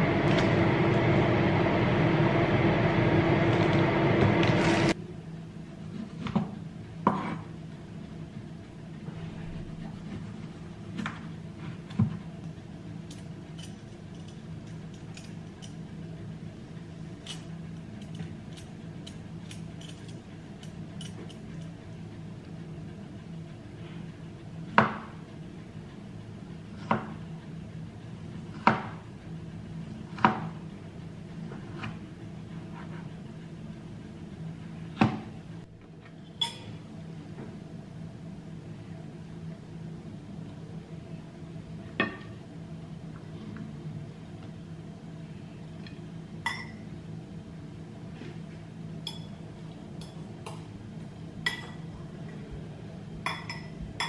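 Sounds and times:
steady low hum: 0.0 - 54.0.

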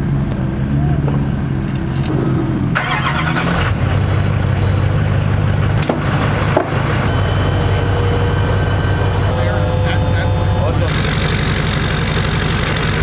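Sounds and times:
diesel engine cranking and idling: 0.0 - 13.0
another engine idling: 2.8 - 13.0.

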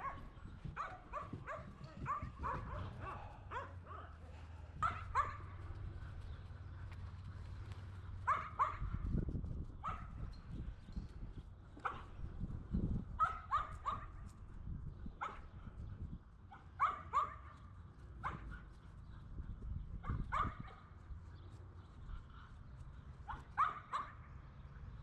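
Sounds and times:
dog yipping: 8.3 - 8.8, 9.8 - 10.1, 13.2 - 14.1, 16.5 - 17.4, 20.0 - 20.7, 23.3 - 24.2.

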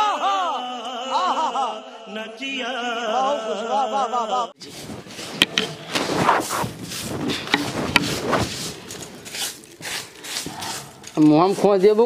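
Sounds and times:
hand broom sweeping earth floor: 4.6 - 12.0.

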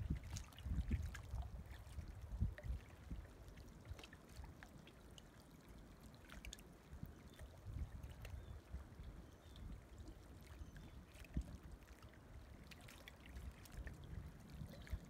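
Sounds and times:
wind rumbling on microphone: 0.0 - 4.0, 6.9 - 12.6, 13.3 - 15.0
small waves lapping: 0.0 - 15.0.

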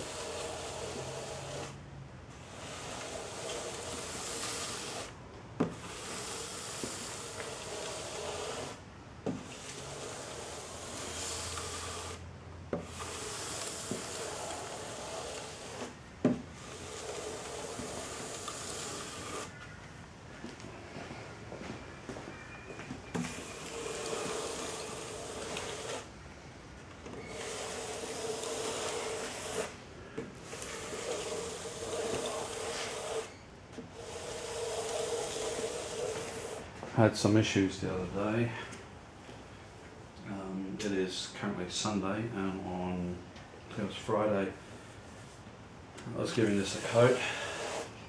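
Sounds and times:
sanding block scratching wood: 0.0 - 1.8, 2.4 - 5.1, 5.7 - 8.8, 9.4 - 12.2, 12.8 - 16.0, 16.6 - 19.5, 23.3 - 26.1, 27.3 - 29.8, 30.4 - 36.6, 46.2 - 48.0.

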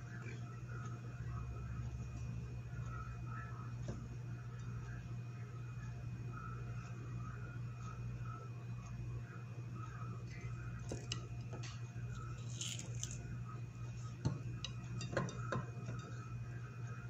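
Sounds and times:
steady low hum: 0.0 - 17.0
light clicks and taps on plate: 10.3 - 13.2, 13.9 - 16.4.

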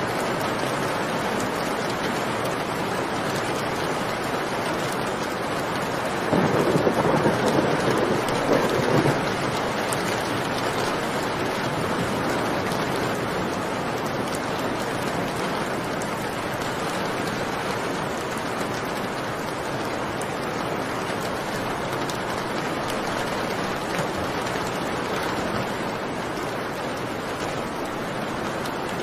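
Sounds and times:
heavy rain: 0.0 - 29.0
thunder rumbling: 6.2 - 11.5.

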